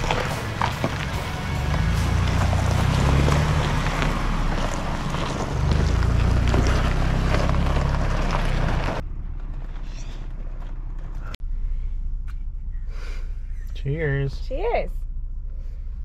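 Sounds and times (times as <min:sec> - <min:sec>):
vehicle rumbling over rocky trail: 0:00.0 - 0:14.0
steady cab hum: 0:09.0 - 0:16.0.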